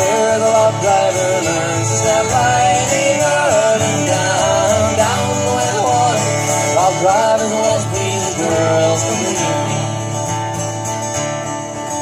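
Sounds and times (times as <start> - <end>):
fiddle playing: 0.0 - 10.0
strummed acoustic guitars: 0.0 - 12.0.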